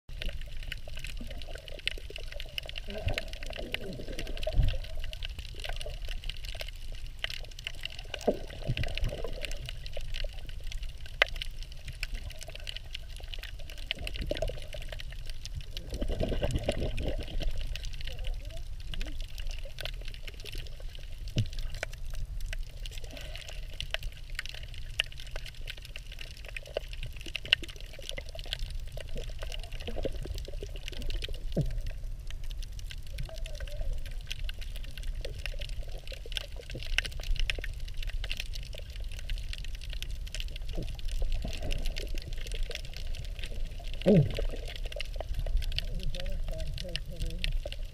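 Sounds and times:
small underwater clicks: 0.1s - 47.9s
underwater rumble and hiss: 0.1s - 47.9s
gurgle sliding down in pitch: 0.2s - 10.6s, 15.6s - 21.9s, 40.5s - 47.9s.

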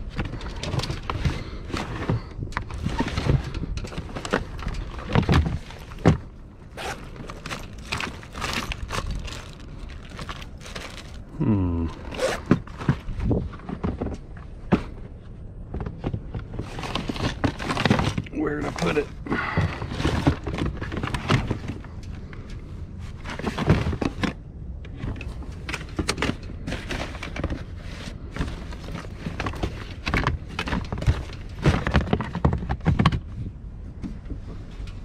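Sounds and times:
plastic gear knocking and clunking: 0.0s - 11.4s, 28.4s - 33.4s.

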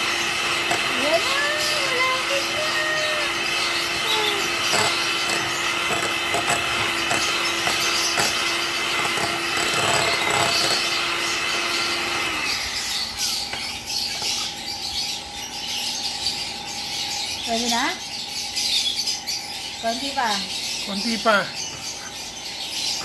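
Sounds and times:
electric mixer motor: 0.0s - 14.6s.

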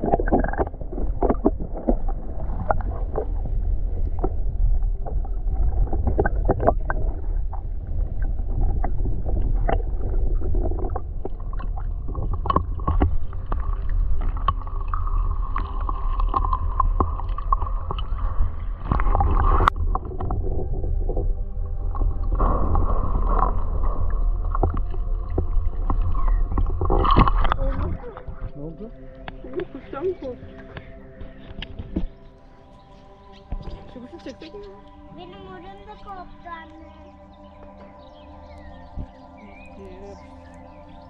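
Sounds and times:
microphone handling rumble: 0.0s - 29.9s.

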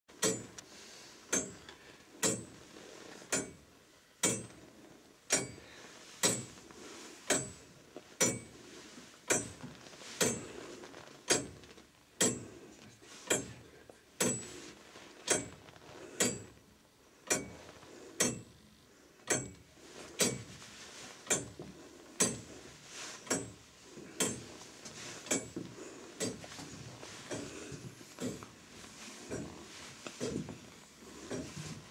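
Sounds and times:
clock mechanism ticking: 0.2s - 0.7s, 1.3s - 2.6s, 3.2s - 4.6s, 5.2s - 5.6s, 6.2s - 6.6s, 7.3s - 7.6s, 8.2s - 8.6s, 9.2s - 9.6s, 11.2s - 11.6s, 12.2s - 12.5s, 13.2s - 13.6s, 14.2s - 14.5s, 15.2s - 15.6s, 16.2s - 18.6s, 19.2s - 20.5s, 21.2s - 21.6s, 22.2s - 22.5s, 23.2s - 23.6s, 24.2s - 24.6s, 25.2s - 26.7s.

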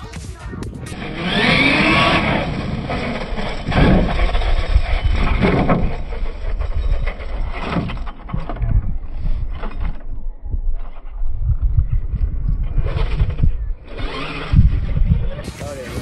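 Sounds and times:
electric motor whining: 0.9s - 10.0s, 12.6s - 16.0s.

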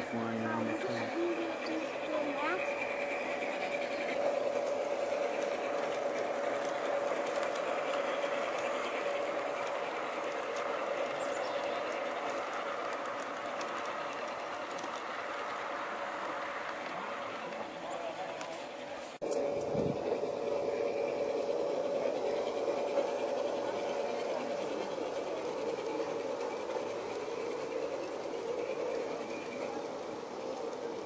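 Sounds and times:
model train motor humming: 0.0s - 31.0s
wheels ticking over rails: 0.0s - 31.0s.

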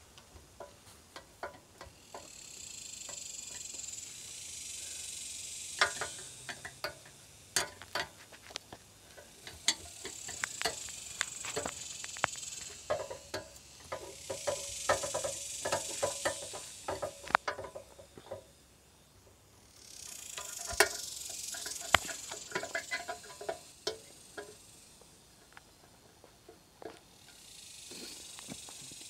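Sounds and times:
metal clicks and taps: 0.2s - 2.3s, 5.8s - 18.5s, 20.4s - 24.6s
high insect buzz: 0.4s - 29.0s.

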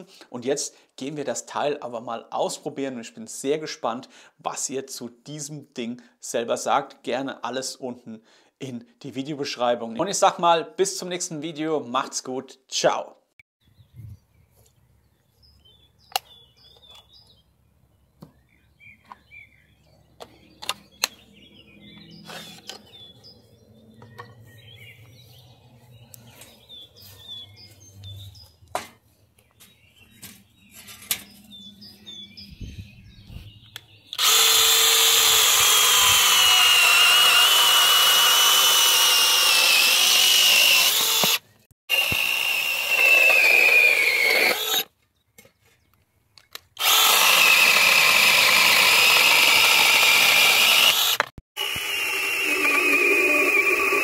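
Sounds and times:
cordless chainsaw whine: 34.1s - 44.9s, 46.8s - 54.0s.

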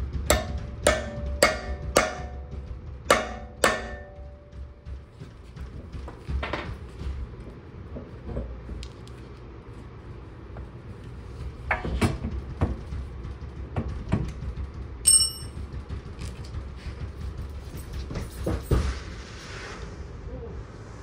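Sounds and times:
metal tool knocking and clinking: 15.0s - 15.7s
bright metallic ring: 15.1s - 15.6s.

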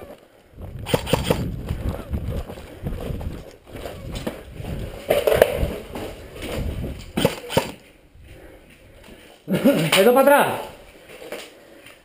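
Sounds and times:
footsteps crunching on dirt: 0.6s - 7.2s.

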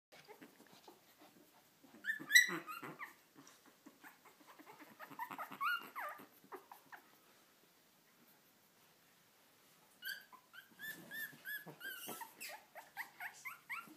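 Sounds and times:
puppies whimpering and squeaking: 0.2s - 7.2s, 9.9s - 13.9s.

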